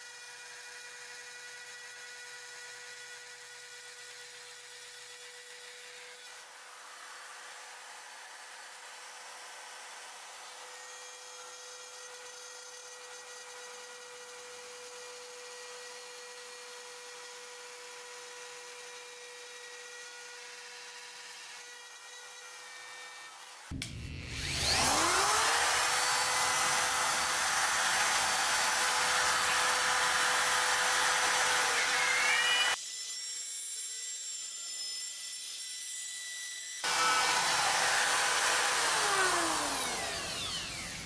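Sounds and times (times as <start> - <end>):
rotary tool high-pitched whine: 0.0 - 41.0
rasping plastic cutting noise: 10.4 - 35.7, 36.8 - 41.0.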